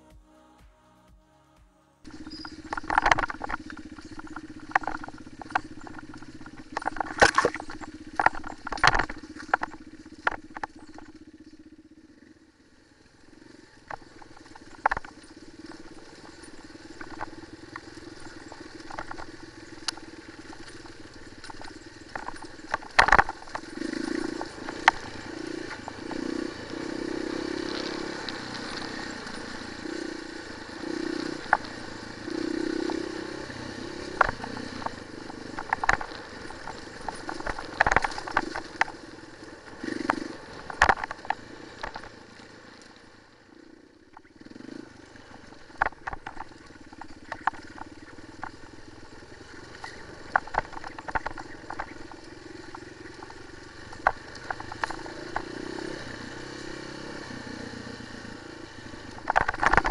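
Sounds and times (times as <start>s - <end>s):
motorcycle engine revving: 0.0s - 59.9s
clatters and knocks of stones: 2.1s - 11.3s, 13.9s - 26.7s, 34.0s - 42.4s, 45.5s - 56.2s, 59.0s - 59.9s.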